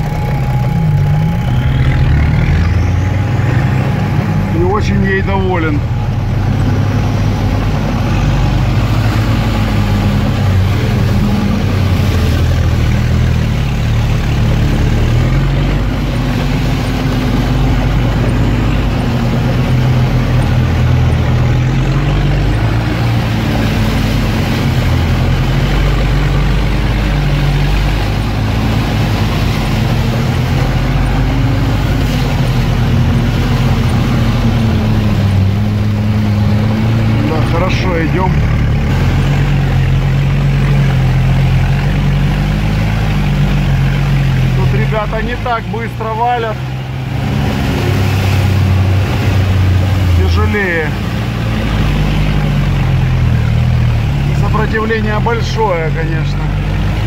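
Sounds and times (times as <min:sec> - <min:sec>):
car engine running under load: 0:00.0 - 0:57.0.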